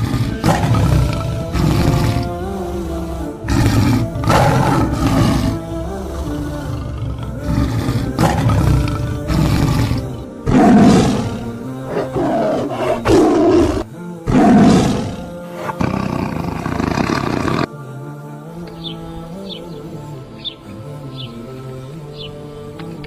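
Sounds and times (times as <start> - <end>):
lion roaring and growling: 0.0 - 17.7
background music: 0.0 - 23.0.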